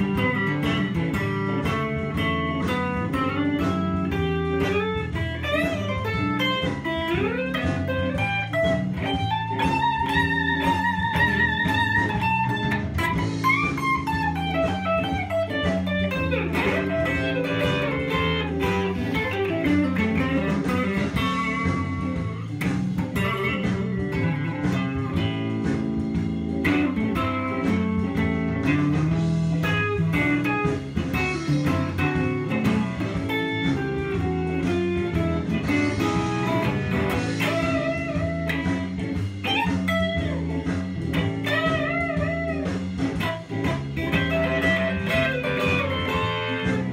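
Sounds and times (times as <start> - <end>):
electric guitar blues lead: 0.0 - 46.9
low backing music: 0.0 - 46.9.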